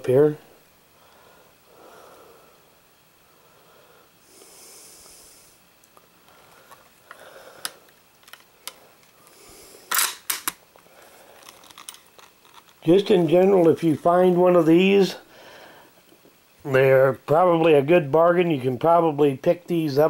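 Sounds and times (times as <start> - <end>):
soft hiss: 0.0 - 20.0
camera handling noise: 9.9 - 12.8.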